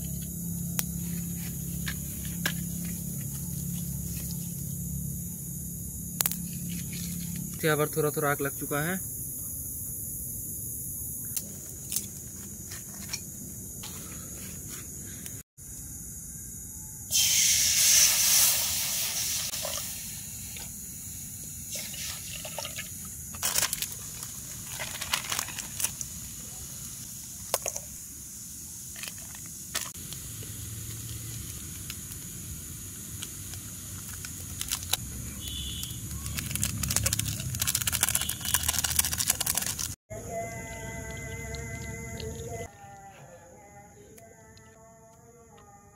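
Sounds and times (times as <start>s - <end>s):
crickets chirping: 0.0s - 45.9s
water hissing in hot pan: 17.1s - 23.2s, 25.4s - 34.9s
wood fire crackling: 30.0s - 40.0s.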